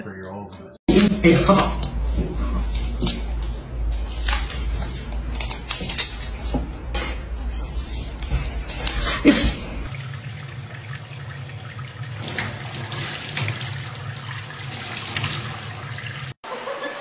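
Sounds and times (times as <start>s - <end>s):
tap water running into sink: 9.9s - 16.4s.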